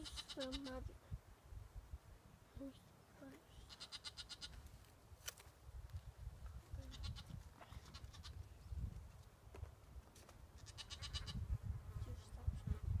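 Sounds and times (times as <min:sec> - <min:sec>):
lambs bleating: 0:00.0 - 0:00.8, 0:03.7 - 0:04.5, 0:10.6 - 0:11.4.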